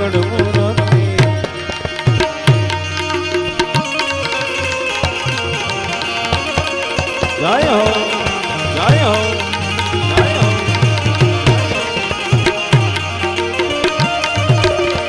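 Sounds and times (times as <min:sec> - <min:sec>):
banjo melody: 0:00.0 - 0:15.0
harmonium: 0:00.0 - 0:15.0
tabla drumming: 0:00.0 - 0:15.0.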